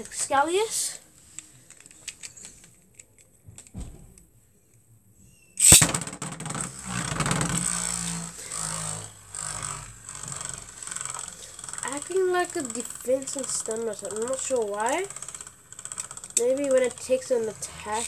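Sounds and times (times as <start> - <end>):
spinning top launch crack: 5.6 - 18.0
spinning top whirring scrape: 5.6 - 18.0.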